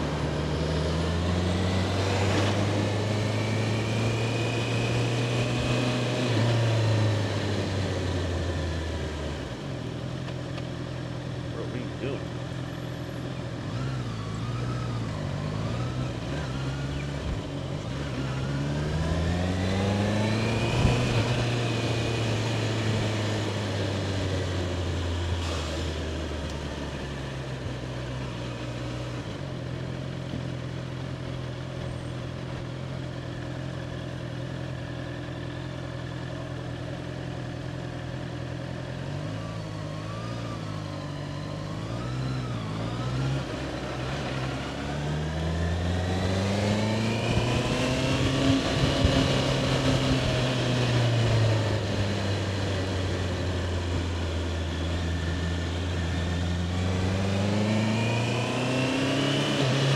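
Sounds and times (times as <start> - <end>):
motorcycle engine revving: 0.0 - 10.0, 11.2 - 59.9.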